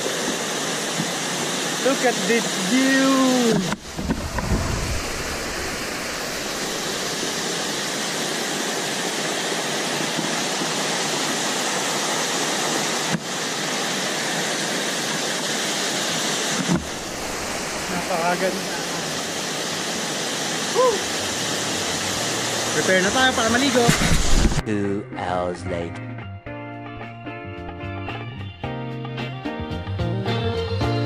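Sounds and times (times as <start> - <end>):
waterfall rushing over boulders: 0.0 - 24.6.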